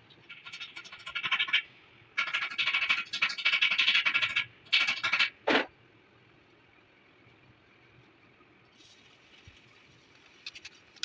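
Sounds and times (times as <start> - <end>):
rapid metallic scratching: 0.3 - 1.6.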